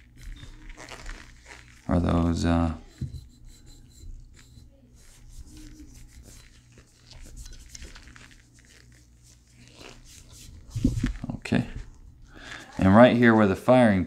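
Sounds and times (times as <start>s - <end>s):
cloth rubbing on metal: 0.0s - 13.8s.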